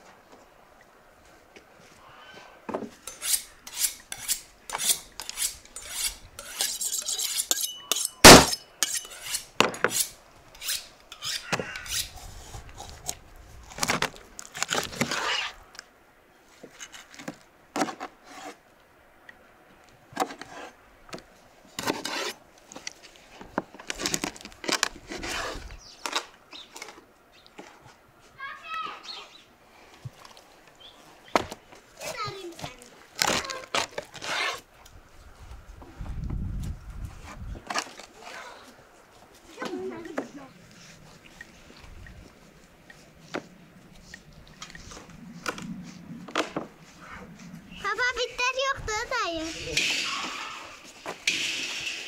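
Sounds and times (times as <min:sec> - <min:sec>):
utensils and dishes scraping and clinking: 0:03.1 - 0:12.1.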